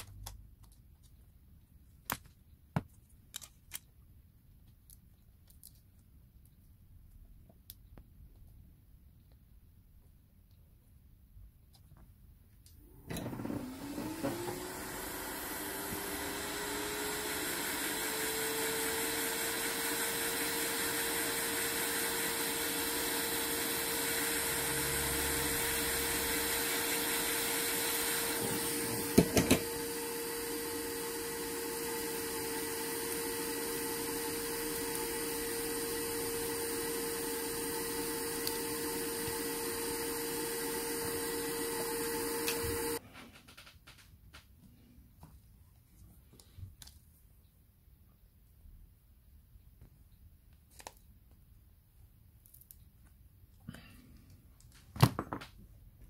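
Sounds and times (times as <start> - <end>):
small electric motor spinning: 13.7 - 43.0.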